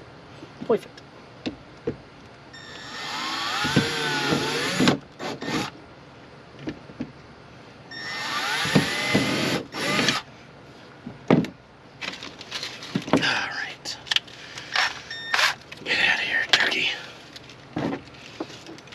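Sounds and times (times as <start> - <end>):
cordless drill drilling into wood: 2.6 - 5.7, 8.0 - 10.2.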